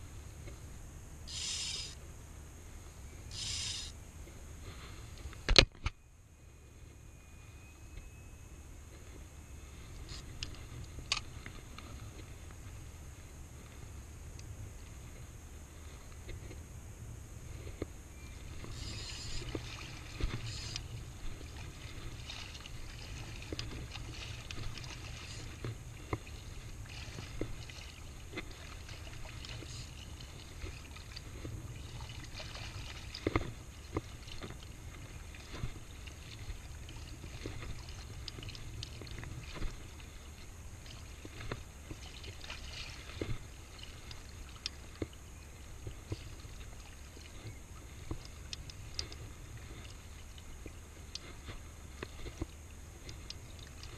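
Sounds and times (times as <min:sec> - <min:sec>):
steady low rumble: 0:00.0 - 0:53.9
small clicks and knocks: 0:05.2 - 0:06.0
water sloshing while wading: 0:17.4 - 0:53.9.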